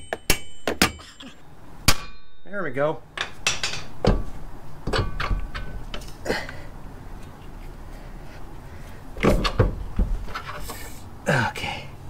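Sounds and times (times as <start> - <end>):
metal clicks and knocks: 3.2 - 6.2.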